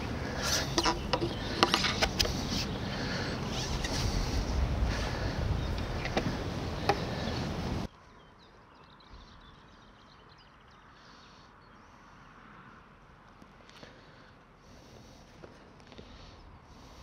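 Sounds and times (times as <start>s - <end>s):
wind buffeting microphone: 0.0s - 7.9s.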